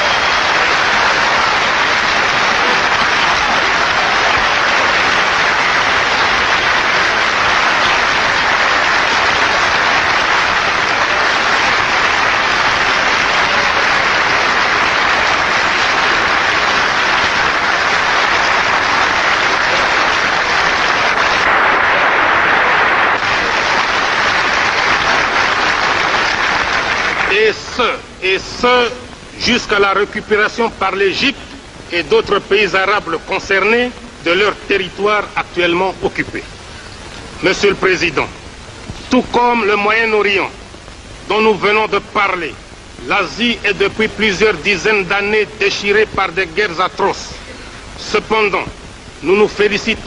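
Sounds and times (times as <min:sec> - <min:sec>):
crowd applause: 0:00.0 - 0:30.0.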